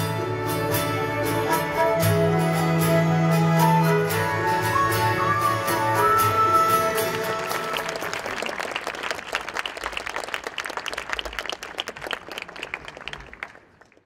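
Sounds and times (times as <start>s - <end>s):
audience applause: 4.2s - 14.0s.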